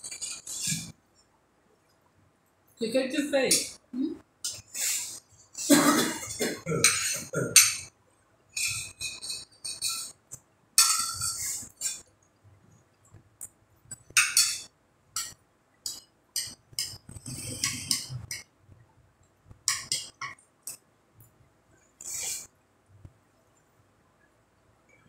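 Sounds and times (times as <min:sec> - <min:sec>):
cutlery clinking on plates: 0:05.8 - 0:07.9, 0:08.6 - 0:10.2, 0:10.8 - 0:12.1, 0:13.9 - 0:18.4, 0:19.6 - 0:20.8.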